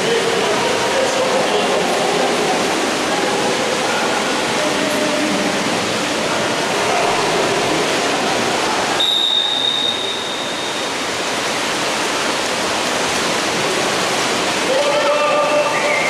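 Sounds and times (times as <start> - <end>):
crowd noise: 0.0 - 16.0
water splashing: 0.0 - 16.0
referee's whistle blast: 9.0 - 10.8.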